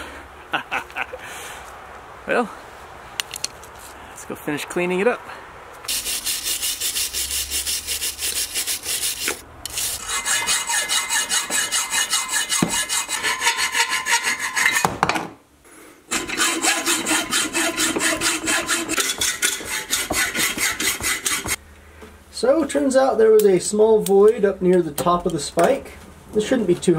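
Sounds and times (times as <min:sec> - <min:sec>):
brush scrubbing: 0:05.9 - 0:14.6, 0:16.2 - 0:21.6
hacksaw cutting metal: 0:05.9 - 0:15.0, 0:16.1 - 0:21.6.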